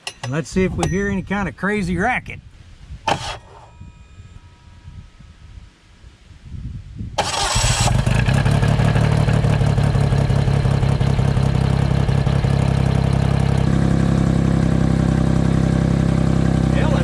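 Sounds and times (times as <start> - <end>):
starter motor cranking: 3.1 - 3.7, 7.2 - 9.2
engine idling: 7.2 - 17.0.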